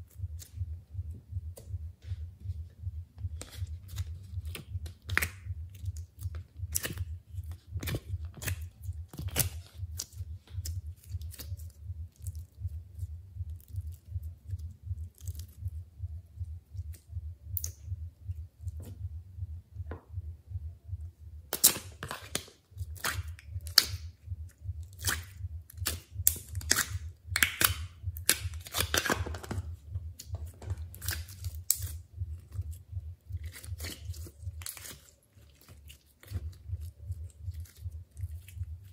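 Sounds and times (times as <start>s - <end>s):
steady low hum: 0.0s - 38.9s
slime squelching and popping: 3.4s - 12.7s, 21.5s - 38.9s.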